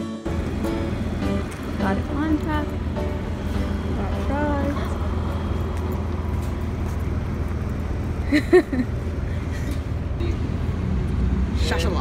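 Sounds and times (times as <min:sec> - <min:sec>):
low motor rumble: 0:00.3 - 0:12.0.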